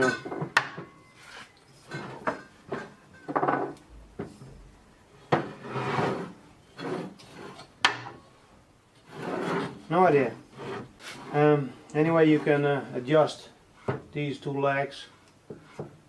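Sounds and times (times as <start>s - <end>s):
metal parts scraping and rubbing: 1.0s - 3.3s, 5.3s - 7.8s, 9.0s - 12.8s.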